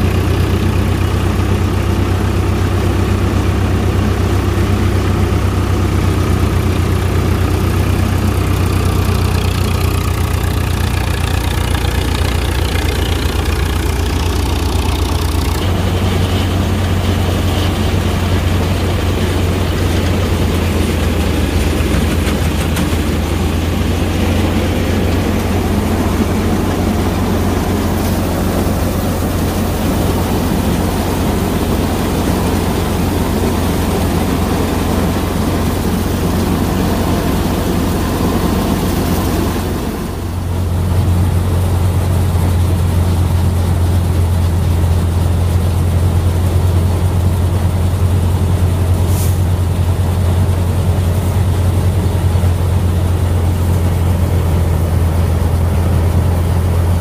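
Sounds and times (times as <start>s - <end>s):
diesel tractor engine running: 0.0s - 57.0s
thresher whirring: 6.0s - 41.0s.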